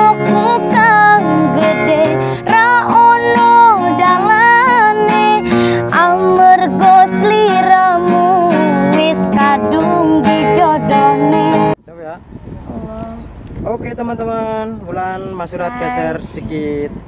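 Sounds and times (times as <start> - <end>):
strummed acoustic guitar: 0.0 - 11.8
woman singing: 0.0 - 11.8.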